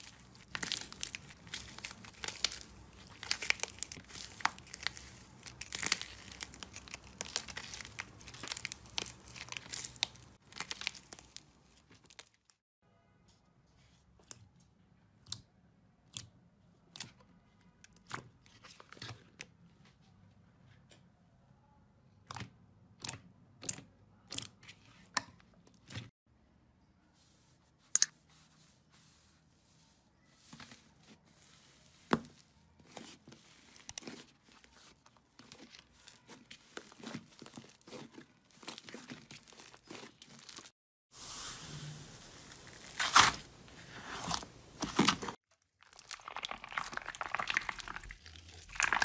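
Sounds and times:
slime squished by hand: 0.0s - 12.2s, 31.4s - 40.7s, 42.2s - 49.0s.

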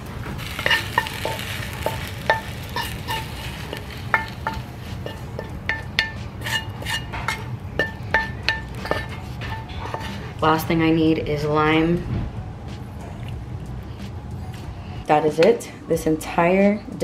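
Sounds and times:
utensil scraping metal skillet: 0.4s - 10.6s.

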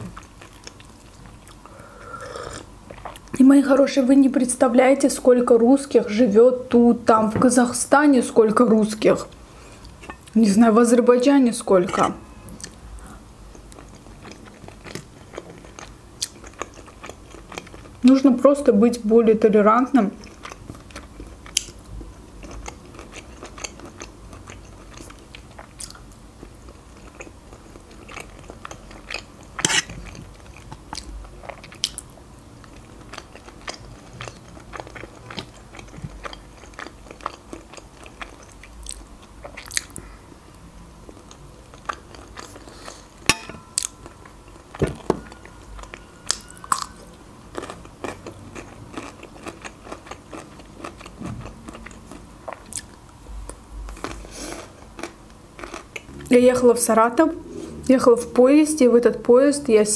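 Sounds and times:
chewing and mouth sounds: 0.0s - 1.7s, 2.4s - 3.4s, 11.9s - 18.2s, 20.2s - 40.1s, 41.0s - 43.1s, 45.4s - 56.4s.

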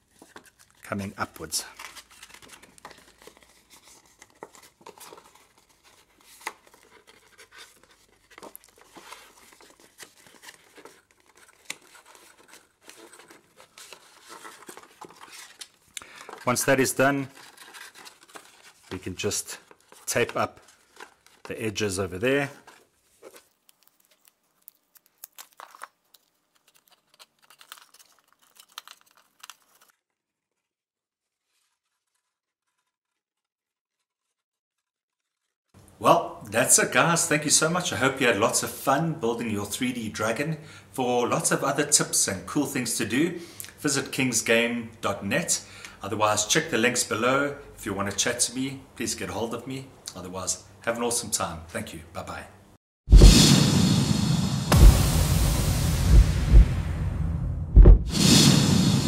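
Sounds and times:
paper crackles: 0.0s - 35.8s
paper rustling and crinkling: 0.0s - 35.9s
small crackles and clicks: 23.2s - 30.0s.

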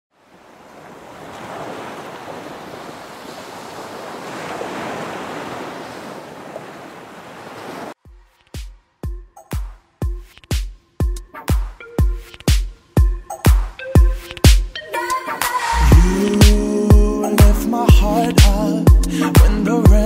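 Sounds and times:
music with deep bass thumps: 15.8s - 20.0s.

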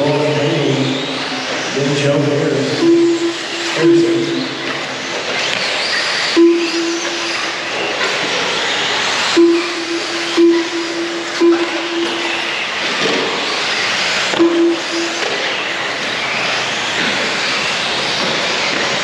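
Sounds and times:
rc cars whirring: 0.0s - 10.5s
low beep: 2.8s - 4.8s, 6.3s - 7.8s, 9.4s - 12.8s, 14.4s - 15.7s.

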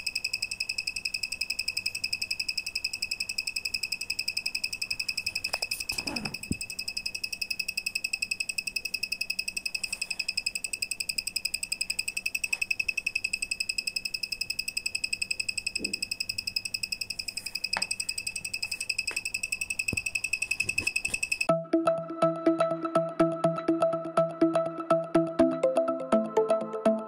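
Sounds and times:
high-pitched buzzer beep: 0.0s - 21.5s.

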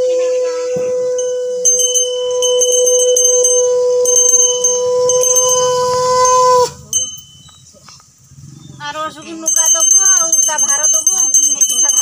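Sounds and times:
conch shell blown: 0.0s - 7.2s
hand bell jingling: 1.2s - 7.8s, 9.1s - 12.0s.

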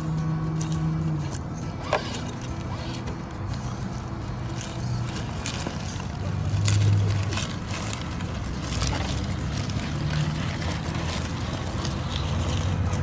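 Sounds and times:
dry leaves crackling: 0.0s - 13.0s.

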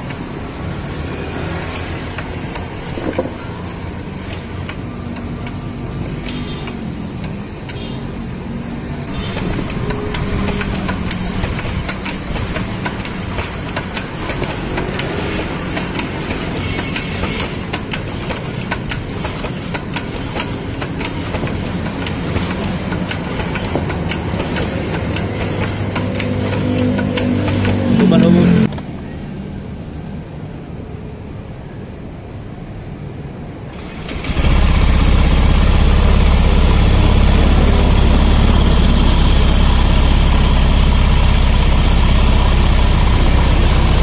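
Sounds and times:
motorcycle engine running: 9.1s - 28.7s, 33.7s - 44.0s.

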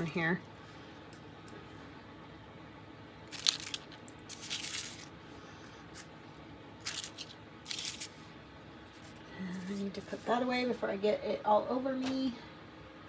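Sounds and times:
packing paper rustling: 3.3s - 5.1s, 6.8s - 8.2s.

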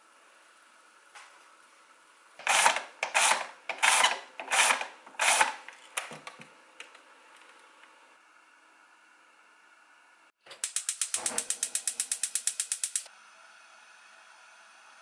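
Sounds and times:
mechanism ratcheting: 2.4s - 5.6s, 10.6s - 13.1s.

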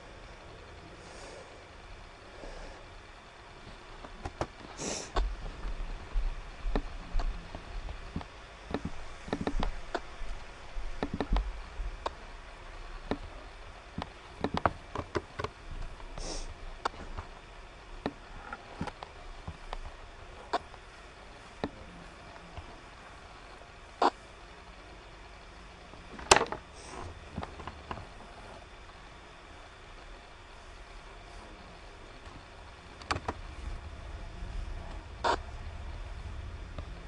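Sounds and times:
short hissing: 4.8s - 5.2s, 16.2s - 16.5s
clicks and light knocks: 14.0s - 15.9s.

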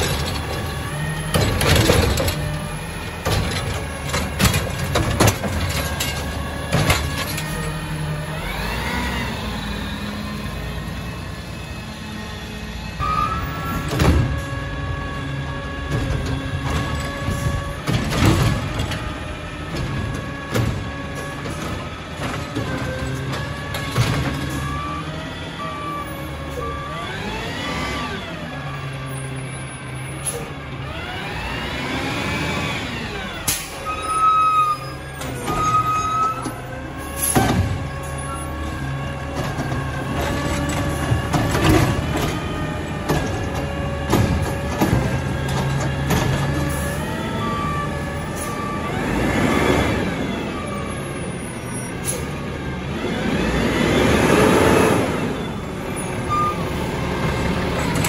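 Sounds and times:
metal clanks and bangs: 0.0s - 8.0s, 15.8s - 24.8s, 34.9s - 47.2s
diesel engine running: 0.0s - 34.2s
garbage truck whine: 0.0s - 58.0s.

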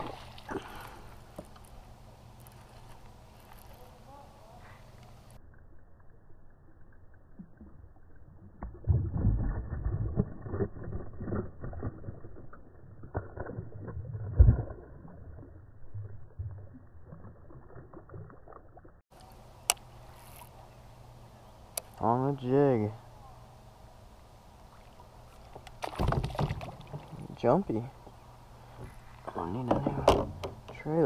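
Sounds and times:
rod and reel handling: 1.1s - 4.1s, 19.2s - 20.6s
knocks against kayak hull: 29.6s - 30.7s.

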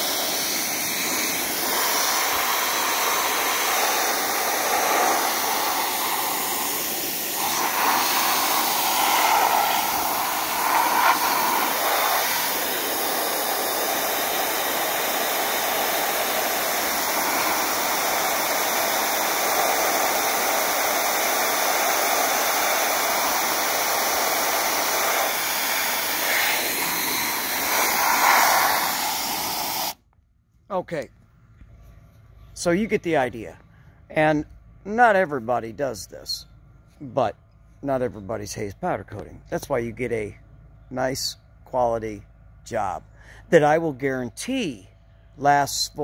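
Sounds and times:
spray gun hissing: 0.0s - 30.0s.

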